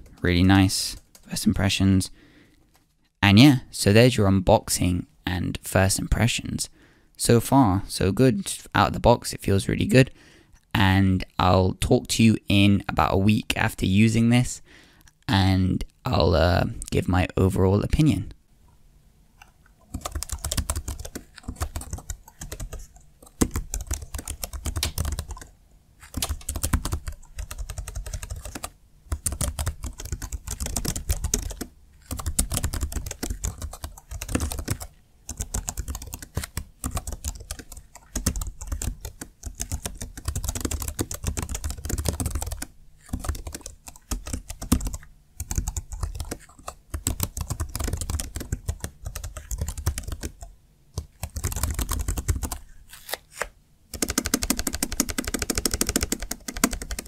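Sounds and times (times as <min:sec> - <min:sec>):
fast typing on keyboard: 0:00.8 - 0:01.3, 0:19.9 - 0:50.4, 0:51.0 - 0:52.6, 0:53.9 - 0:57.0.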